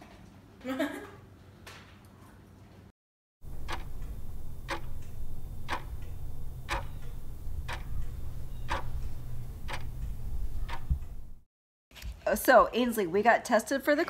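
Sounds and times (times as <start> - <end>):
clock ticking: 3.4 - 11.4
low steady hum: 3.4 - 11.4.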